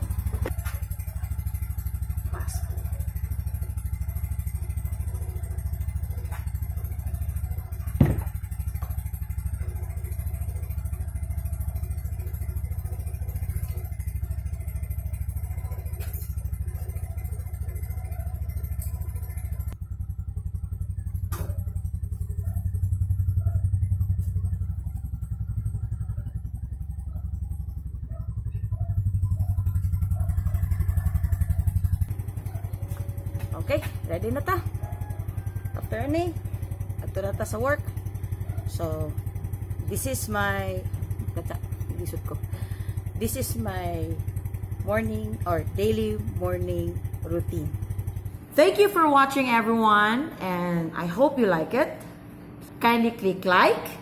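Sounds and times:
scooter engine idling: 0:00.0 - 0:52.8.

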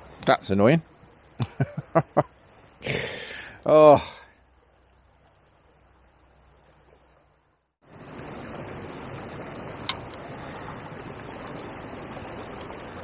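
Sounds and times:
fast-flowing river water: 0:02.3 - 0:13.0.

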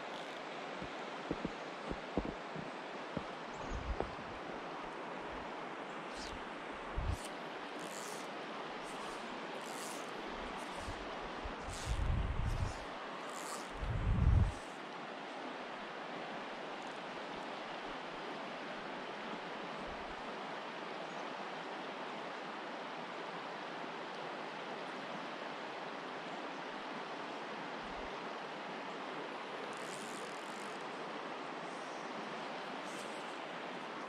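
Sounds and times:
creek water running over rocks: 0:00.0 - 0:18.6.

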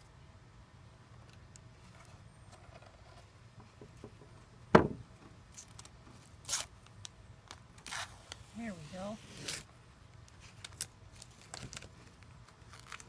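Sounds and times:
sharp knock: 0:04.7 - 0:05.0
tape ripping from wood: 0:05.5 - 0:06.9, 0:07.5 - 0:08.5, 0:09.2 - 0:09.7.

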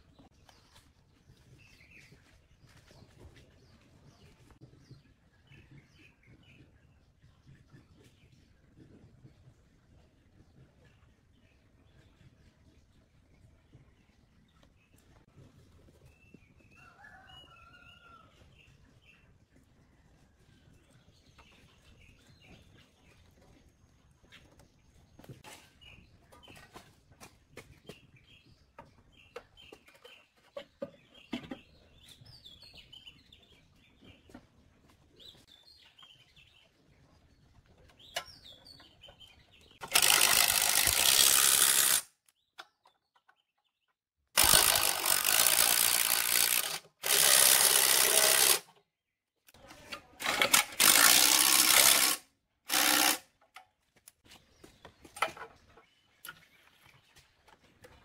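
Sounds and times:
power driver running in bolts: 0:39.8 - 0:42.0, 0:44.4 - 0:48.6, 0:50.2 - 0:53.2.

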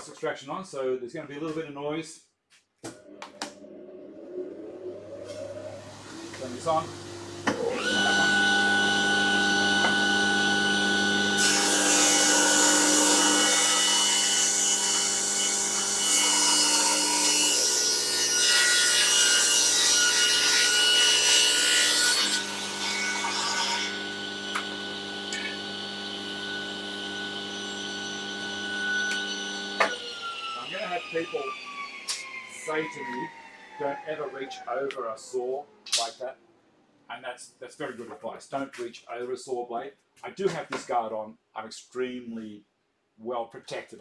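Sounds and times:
dust extractor running: 0:03.0 - 0:11.8, 0:24.0 - 0:31.8
table saw spinning hum: 0:03.0 - 0:14.3, 0:21.6 - 0:34.7.

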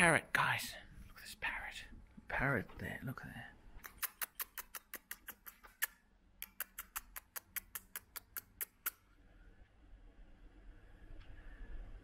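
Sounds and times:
sharp rapid clicks: 0:03.8 - 0:09.0.

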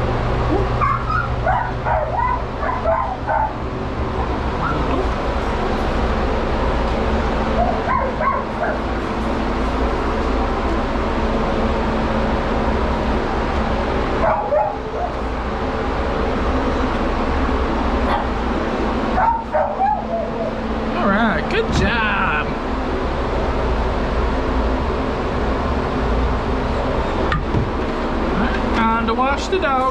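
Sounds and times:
pet blow dryer running: 0:00.5 - 0:22.7.

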